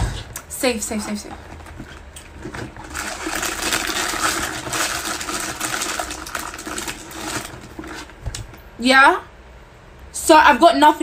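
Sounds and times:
plastic wrapper crinkling: 1.4s - 8.6s.

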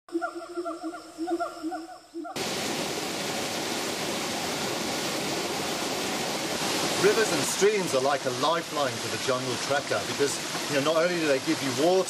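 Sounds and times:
stream cascading over boulders: 2.4s - 12.0s.

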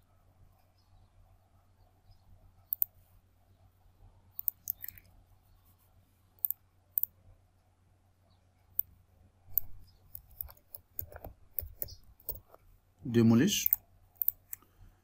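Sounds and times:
faint low hum: 0.0s - 15.0s
mouse buttons clicking: 2.7s - 3.0s, 4.4s - 5.1s, 6.4s - 7.1s, 9.5s - 12.5s, 13.6s - 14.7s.

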